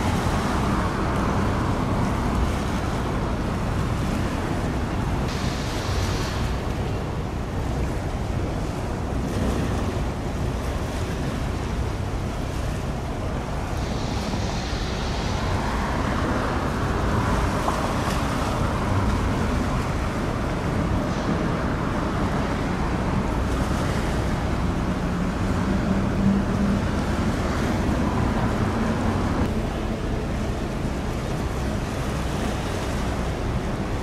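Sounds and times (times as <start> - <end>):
low engine rumble: 0.0 - 34.0
seawater splashing: 0.0 - 34.0
wind buffeting microphone: 0.0 - 34.0.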